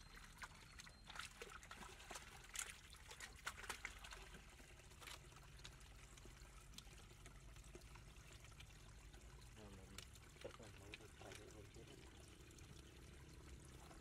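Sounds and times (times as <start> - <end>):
splashes in shallow water: 0.0 - 5.9
water trickling into a hole: 0.0 - 14.0.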